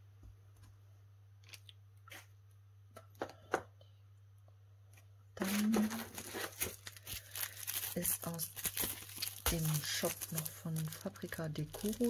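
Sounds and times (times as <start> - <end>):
plastic packets rustling: 5.4 - 12.0.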